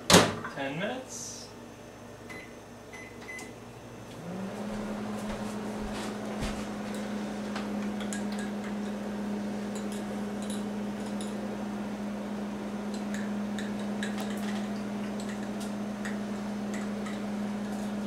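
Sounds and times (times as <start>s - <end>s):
microwave running hum: 0.0s - 18.0s
microwave keypad beeps: 2.3s - 3.5s.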